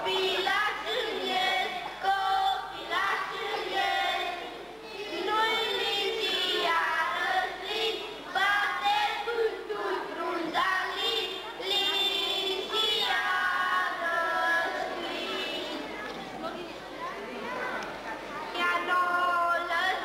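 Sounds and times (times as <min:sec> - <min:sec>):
children singing: 0:00.0 - 0:16.0.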